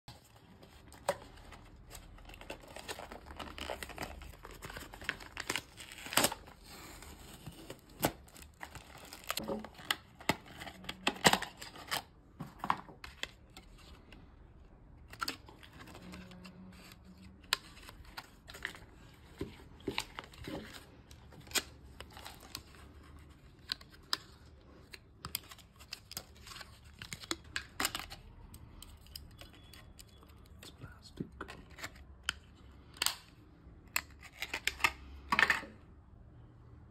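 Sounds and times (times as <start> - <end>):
plastic blister pack crinkling: 0.1 - 12.0.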